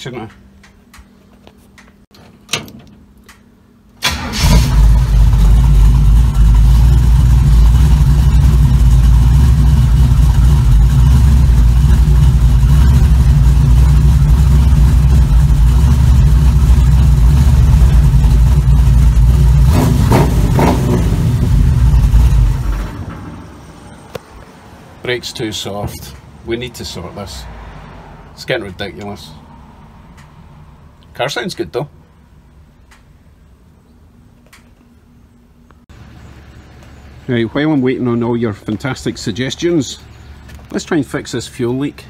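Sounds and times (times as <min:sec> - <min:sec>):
car engine running: 0:04.1 - 0:23.6.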